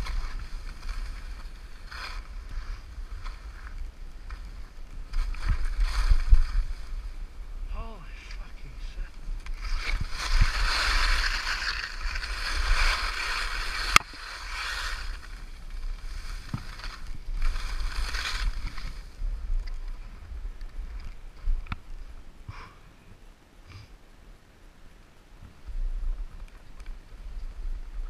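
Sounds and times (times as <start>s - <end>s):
skis scraping over snow: 0.0s - 7.2s, 8.2s - 21.5s
wind on microphone: 0.0s - 22.4s.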